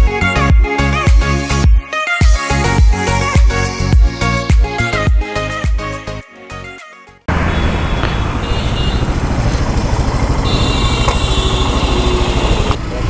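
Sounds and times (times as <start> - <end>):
background music: 0.0 - 7.3
motorcycle engine idling: 7.8 - 13.0.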